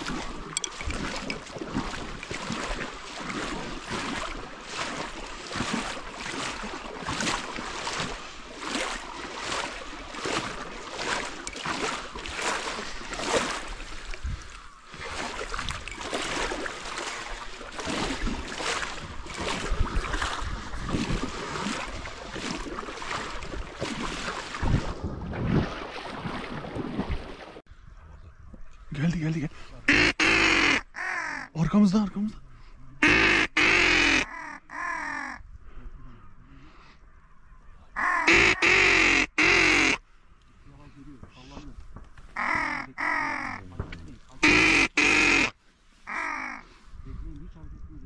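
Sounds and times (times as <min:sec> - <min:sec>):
water splashing and lapping: 0:00.0 - 0:27.7
wind on microphone: 0:13.0 - 0:16.0, 0:17.8 - 0:28.9, 0:46.8 - 0:48.0.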